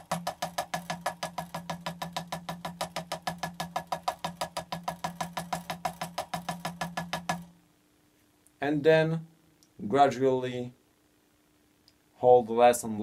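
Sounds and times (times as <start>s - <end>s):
drumstick on a practice pad: 0.0s - 7.6s.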